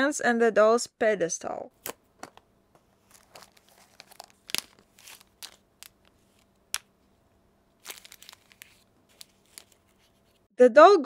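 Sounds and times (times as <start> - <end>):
plastic bags crinkling: 3.0 - 6.8, 7.8 - 10.4.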